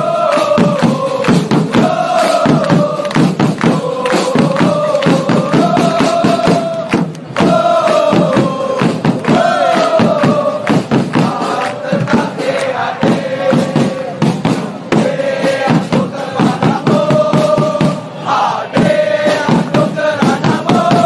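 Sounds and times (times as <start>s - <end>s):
crowd singing in unison: 0.0s - 21.0s
drum beats: 0.0s - 21.0s.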